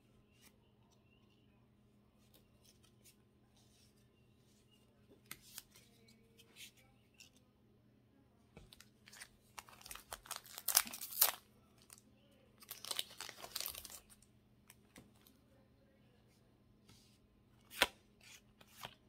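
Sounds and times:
foil wrapper tearing and crinkling: 0:09.1 - 0:11.4, 0:12.6 - 0:14.0.

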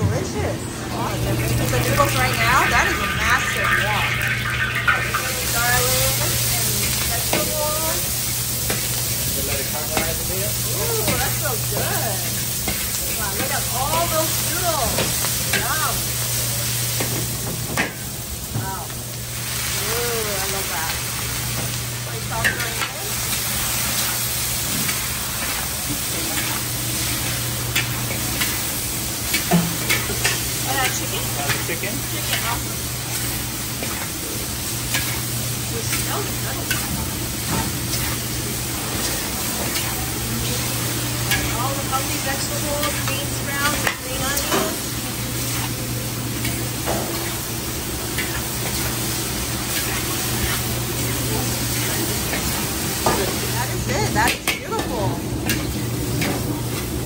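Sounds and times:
noodles sizzling in a wok: 0:00.8 - 0:57.0
metal spatula scraping a wok: 0:34.8 - 0:40.6, 0:41.2 - 0:53.6
metal ladle scraping a wok: 0:46.4 - 0:53.5.

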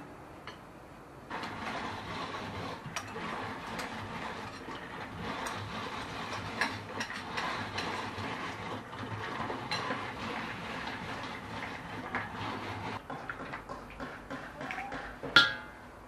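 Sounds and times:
hand-cranked nut grinder grinding: 0:01.3 - 0:14.7.

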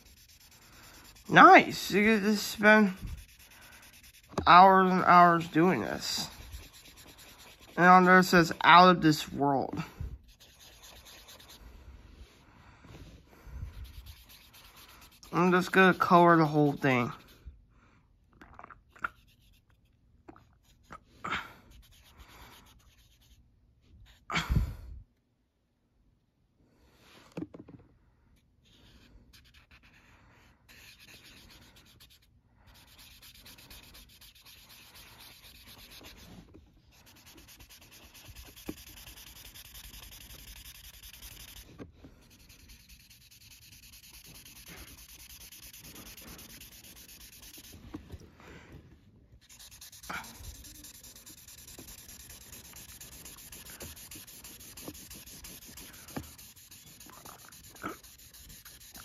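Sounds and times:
marker scrubbing on paper: 0:00.0 - 0:12.4, 0:13.0 - 0:17.6, 0:19.1 - 0:24.3, 0:28.6 - 0:48.3, 0:49.4 - 0:59.0.

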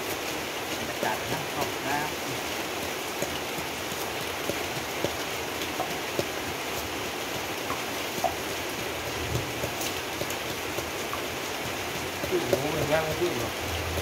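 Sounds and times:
rain hiss: 0:00.0 - 0:14.0
pestle pounding in mortar: 0:03.2 - 0:06.6, 0:09.3 - 0:14.0.

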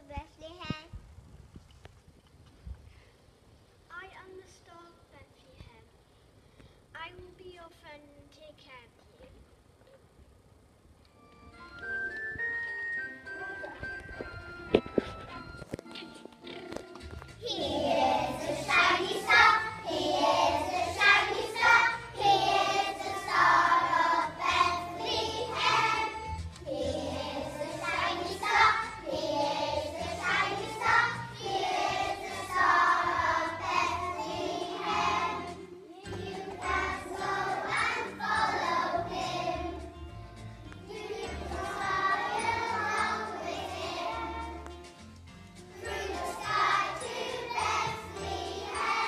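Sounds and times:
musical accompaniment: 0:11.0 - 0:49.0
children singing: 0:17.5 - 0:39.8, 0:40.9 - 0:44.6, 0:45.8 - 0:49.0.

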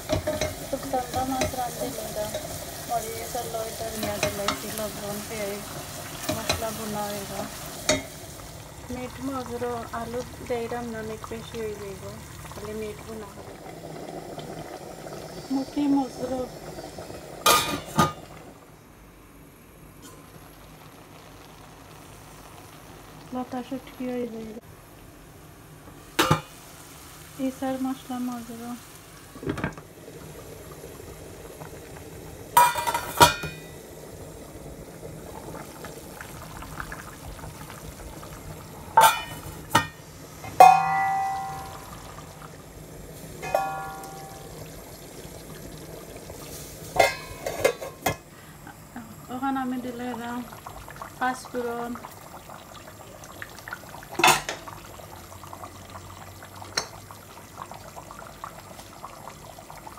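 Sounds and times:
food simmering and bubbling: 0:00.0 - 0:59.9
glass lids clinking on cookware: 0:17.4 - 0:18.2, 0:32.6 - 0:33.7, 0:39.0 - 0:41.9, 0:43.4 - 0:44.5, 0:47.0 - 0:48.2, 0:54.2 - 0:54.6
spoon clanking on steel pot: 0:39.0 - 0:41.8, 0:43.4 - 0:44.4, 0:47.0 - 0:48.2.

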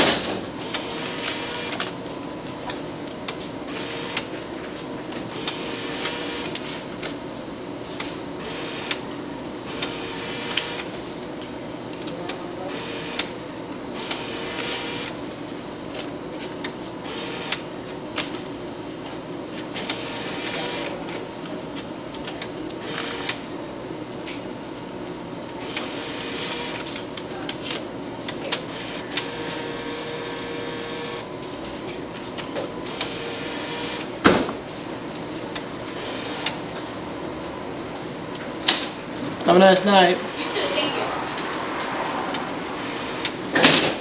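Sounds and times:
bill recycler whir and click: 0:00.0 - 0:04.4, 0:05.1 - 0:07.2, 0:07.9 - 0:11.3, 0:11.9 - 0:13.4, 0:14.0 - 0:18.4, 0:19.7 - 0:21.2, 0:21.8 - 0:23.5, 0:25.4 - 0:31.3, 0:32.3 - 0:34.2, 0:35.1 - 0:36.9, 0:40.2 - 0:44.0
steady hum: 0:00.0 - 0:44.0.

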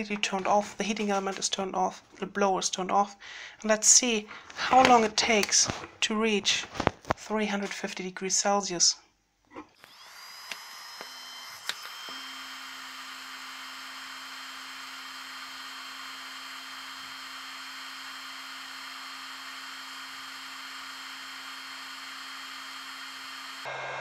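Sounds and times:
hot air blower rushing: 0:09.8 - 0:24.0
click: 0:10.5 - 0:12.0.

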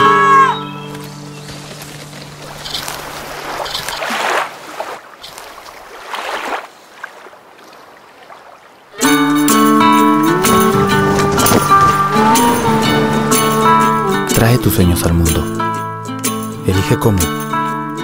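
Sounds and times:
sea surf washing in: 0:01.4 - 0:14.5.

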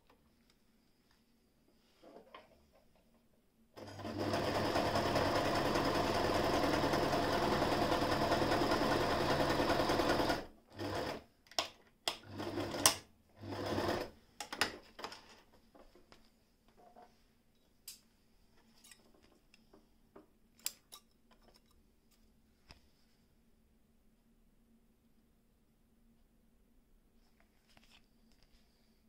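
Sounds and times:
electric sewing machine stitching: 0:03.8 - 0:11.2, 0:12.2 - 0:14.1.

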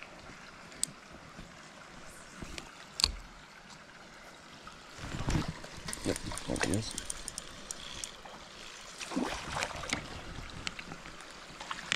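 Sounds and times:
stream water running: 0:00.0 - 0:11.9.

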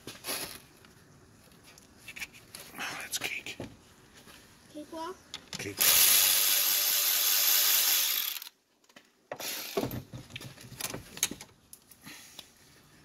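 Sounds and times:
electric ratchet running: 0:05.8 - 0:08.6, 0:09.4 - 0:09.9.

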